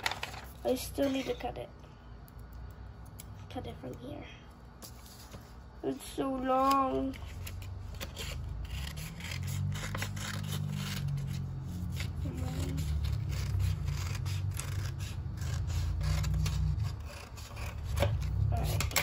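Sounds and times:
scissors snipping paper: 6.2 - 19.0.

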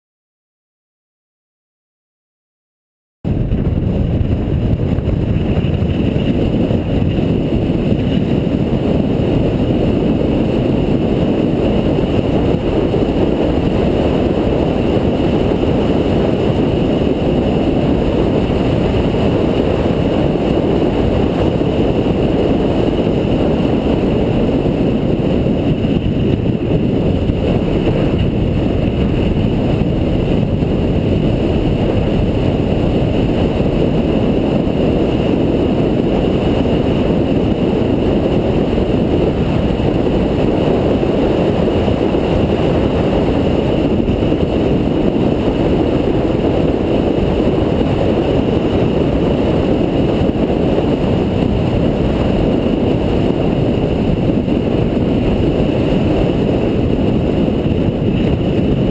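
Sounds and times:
car engine tyres and wind rumble: 3.2 - 58.9.

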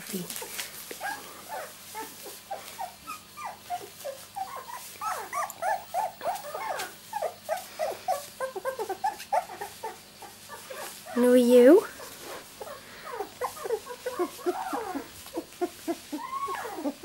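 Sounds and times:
puppies whimpering and squeaking: 0.1 - 17.0.

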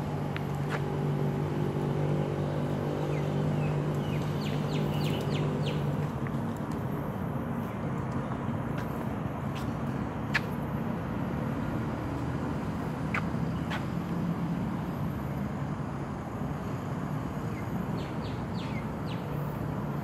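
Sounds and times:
road traffic hum: 0.0 - 20.0
bird chirping: 2.4 - 6.0, 17.5 - 19.4.

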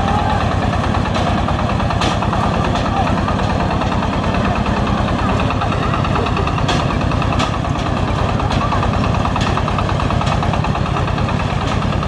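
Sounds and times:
engine running: 0.0 - 12.0
people's voices: 0.0 - 12.0.

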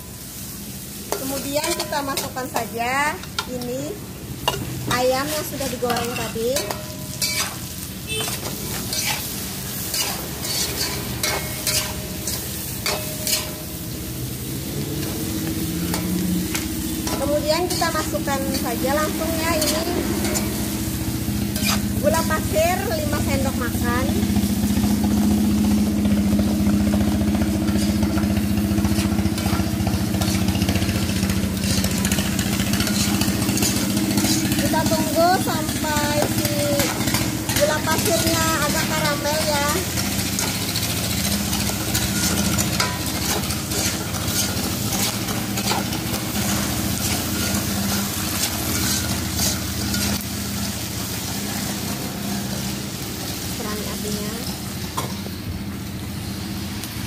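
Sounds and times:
food sizzling: 0.0 - 57.0
spatula scraping a wok: 0.9 - 52.7
small engine idling: 23.8 - 44.8.

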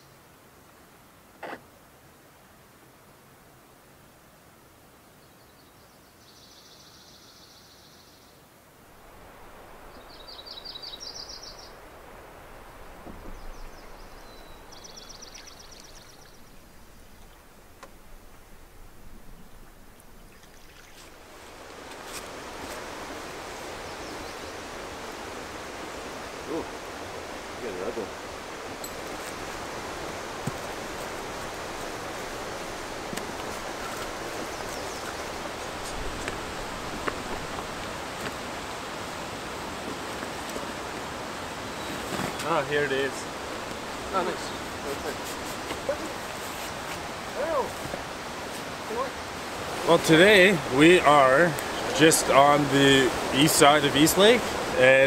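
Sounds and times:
steady outdoor rushing noise: 8.8 - 55.0
water hissing along canoe: 8.9 - 55.0
songbird trills: 9.6 - 12.0, 12.7 - 21.2, 33.4 - 36.0.

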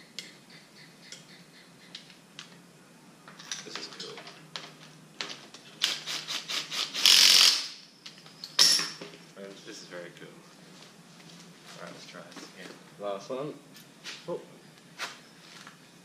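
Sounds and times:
rapid sharp ratchet clicks: 5.8 - 7.8.

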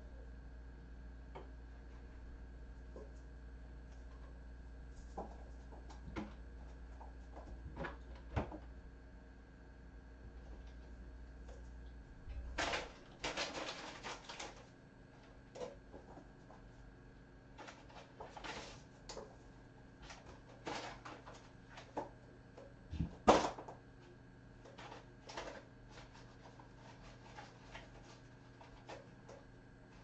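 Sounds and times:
kittens scratching with claws: 12.3 - 16.8, 17.5 - 22.2, 24.6 - 30.0.

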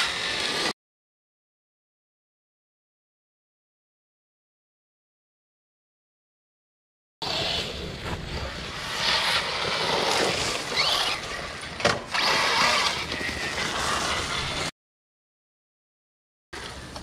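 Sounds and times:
drivetrain and tyre noise: 7.2 - 14.7
electric motor whining: 12.1 - 14.5.

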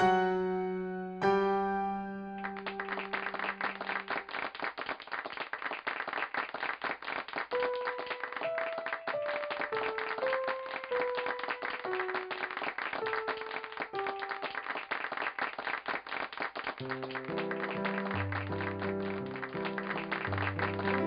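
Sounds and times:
piano chord ringing: 0.0 - 4.2, 7.7 - 14.7
slow piano melody: 0.0 - 4.4, 7.5 - 15.2, 16.8 - 21.0
crowd clapping: 2.4 - 21.0.

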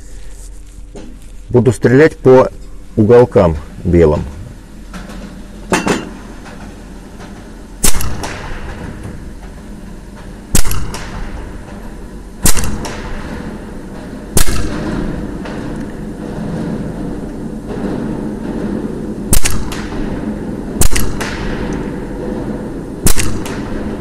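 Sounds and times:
air rifle shots echoing: 7.8 - 9.3, 10.5 - 11.6, 12.4 - 24.0.

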